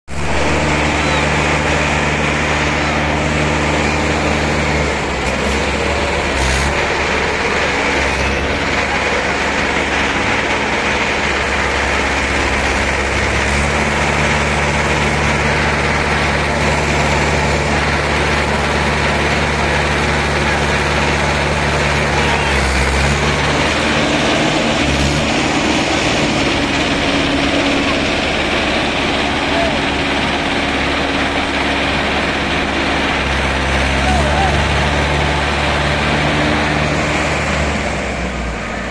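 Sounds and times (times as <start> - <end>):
second tractor engine running: 0.1 - 38.9
tractor diesel engine revving: 0.1 - 38.9.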